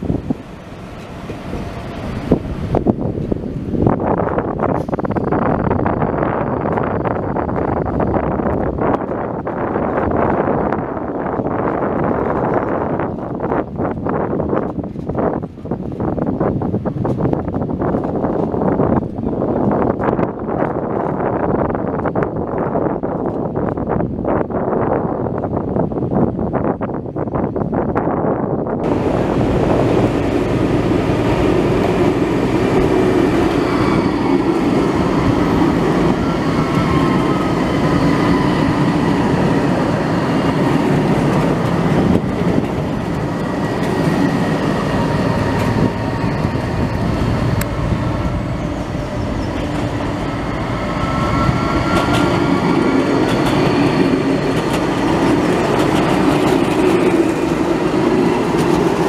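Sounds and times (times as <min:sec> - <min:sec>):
tram wheels rumbling on rails: 0:00.0 - 0:59.0.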